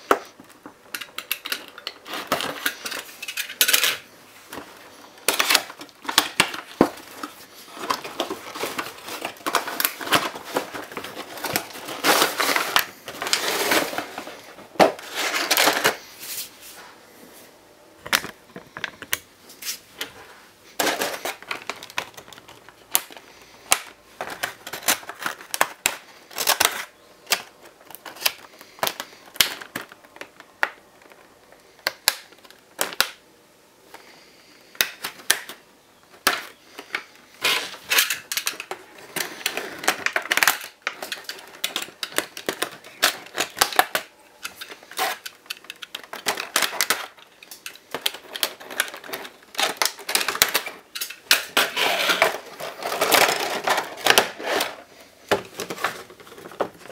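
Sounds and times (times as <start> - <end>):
cardboard scraping and rustling: 4.5 - 17.0, 51.5 - 56.9.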